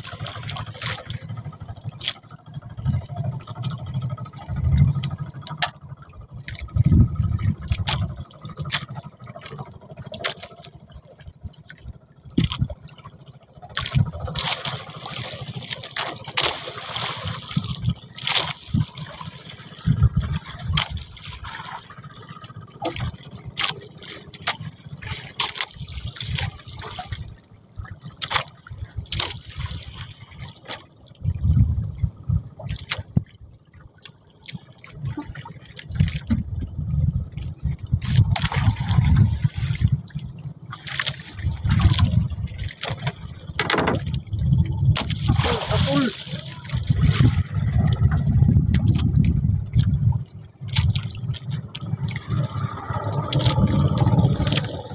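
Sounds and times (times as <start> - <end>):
seawater splashing around boat: 0.0 - 31.4, 32.1 - 54.9
sharp knocks and clatters: 43.0 - 44.1.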